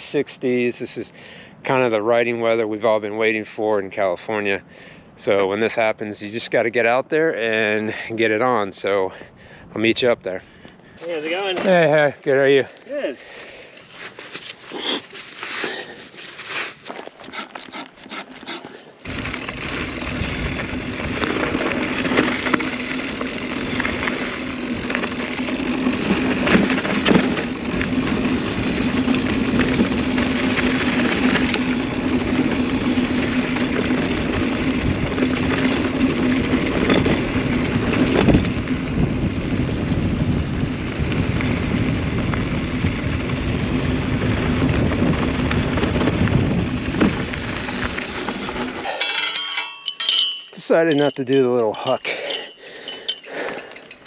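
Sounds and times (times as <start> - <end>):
bike tyres on dirt trail: 10.4 - 54.0
bike rattles and knocks: 11.3 - 12.1, 16.8 - 39.0, 44.3 - 54.0.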